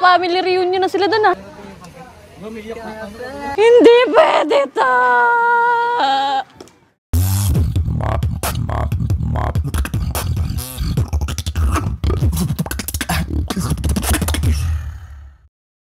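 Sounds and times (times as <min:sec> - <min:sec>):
deep bass line: 0:07.2 - 0:15.1
beatboxing percussion: 0:07.2 - 0:15.5.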